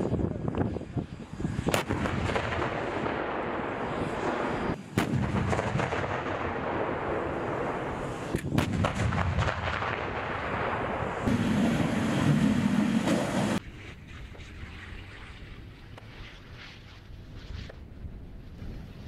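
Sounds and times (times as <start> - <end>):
tank gun blasts: 1.7 - 13.6
tank engines and tracks rumbling: 11.2 - 13.6.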